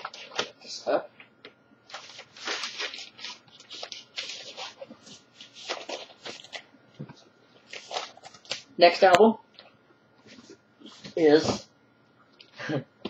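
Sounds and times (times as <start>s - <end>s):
paper and cardboard sleeve rustling: 1.9s - 8.6s.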